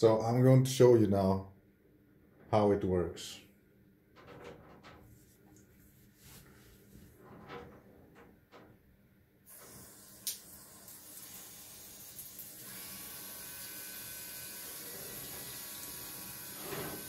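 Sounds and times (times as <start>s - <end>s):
showerhead water spray hissing: 9.5s - 17.0s.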